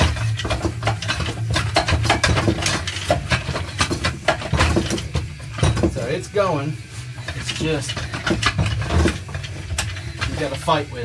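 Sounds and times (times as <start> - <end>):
metallic clinks and rattles: 0.0 - 11.0.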